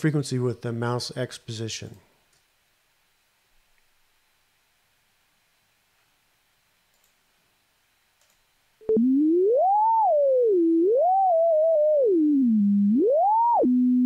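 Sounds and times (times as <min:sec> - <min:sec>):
click: 0:06.9 - 0:07.2, 0:08.2 - 0:08.4
sine-wave tone gliding in pitch: 0:08.8 - 0:14.0.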